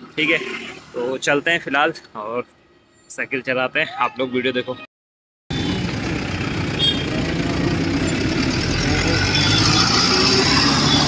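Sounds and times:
vehicle engines rumbling: 5.5 - 11.0.

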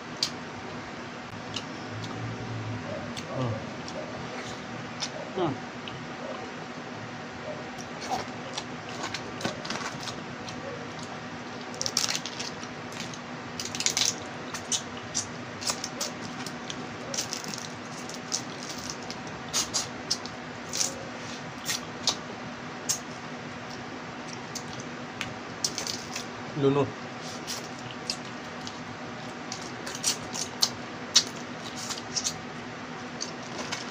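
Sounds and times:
chewing: 7.5 - 22.2, 27.2 - 32.4
crab shells cracking: 11.6 - 20.9, 29.4 - 32.4.

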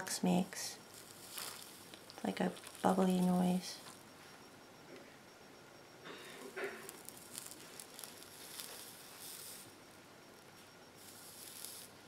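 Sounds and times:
flux sizzling and crackling: 0.0 - 4.3, 6.6 - 9.8, 10.6 - 12.0.

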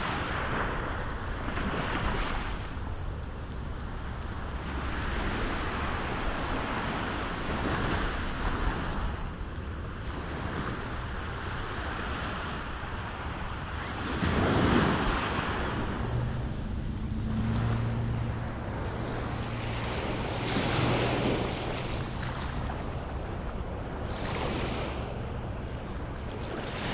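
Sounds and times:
waves washing up a beach: 0.0 - 26.9
wind rumbling on microphone: 0.0 - 26.9
low steady hum: 14.9 - 26.9.

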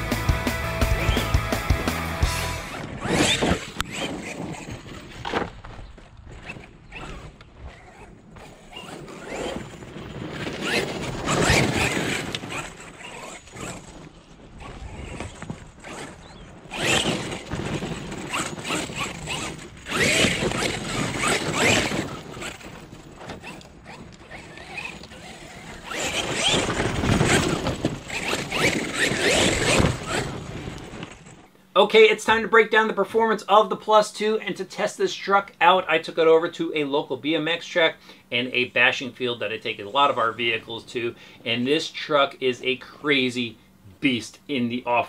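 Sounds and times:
rc truck motor whining: 0.0 - 31.6
tires throwing dirt and gravel: 2.6 - 31.5.

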